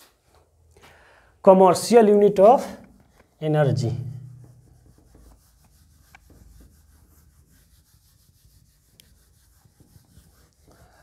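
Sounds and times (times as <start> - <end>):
duster rubbing on whiteboard: 4.2 - 11.0.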